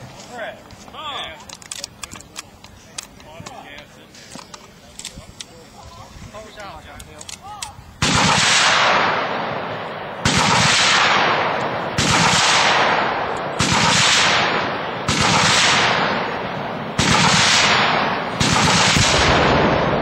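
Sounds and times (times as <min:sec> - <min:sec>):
gunfire echo: 0:08.0 - 0:20.0.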